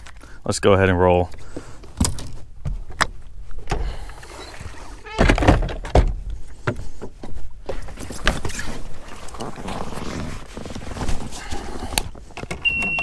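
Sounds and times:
knocks and thuds on boat deck: 5.1 - 7.2.

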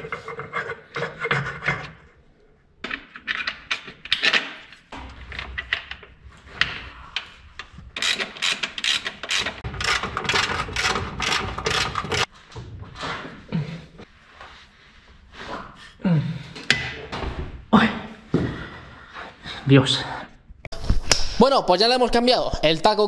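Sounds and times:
metal tools clicking and scraping: 2.9 - 12.3.

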